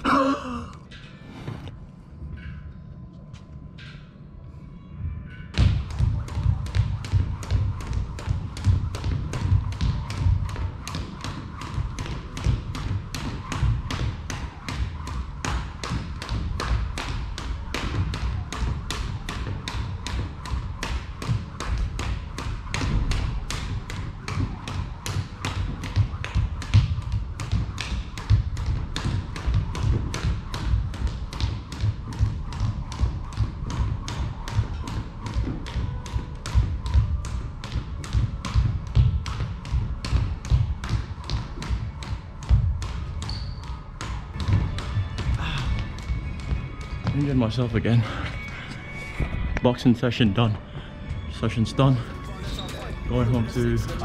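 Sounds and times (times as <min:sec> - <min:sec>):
skipping rope slapping wooden floor: 0:05.6 - 0:47.5.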